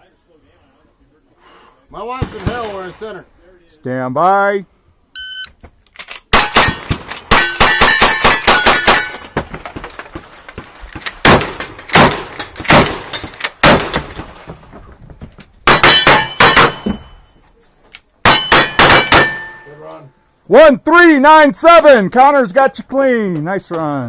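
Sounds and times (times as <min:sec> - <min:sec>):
rifle shots: 0:02.2 - 0:03.0, 0:06.2 - 0:10.4, 0:11.0 - 0:14.5, 0:15.6 - 0:16.8, 0:18.2 - 0:19.5
shotgun shots: 0:02.2 - 0:03.1, 0:06.3 - 0:10.4, 0:11.1 - 0:14.5, 0:15.6 - 0:16.9, 0:18.2 - 0:19.5
steel plate clanging: 0:06.4 - 0:09.4, 0:18.3 - 0:19.8.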